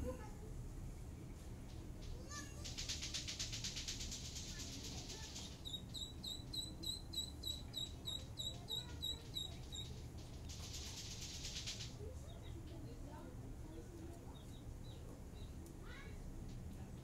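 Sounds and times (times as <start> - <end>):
nestling birds cheeping: 5.2 - 10.0.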